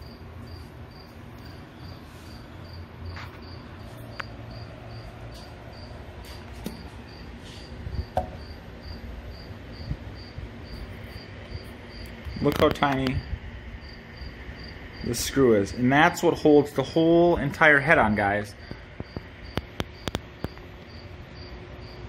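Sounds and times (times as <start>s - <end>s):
cricket chirping: 0.0s - 16.2s, 18.6s - 22.0s.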